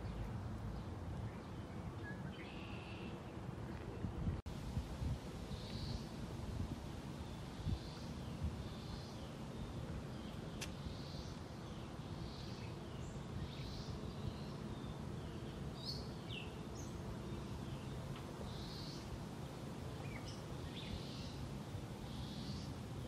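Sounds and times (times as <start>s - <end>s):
birds chirping: 0.0s - 3.5s, 7.2s - 19.2s, 19.8s - 22.8s.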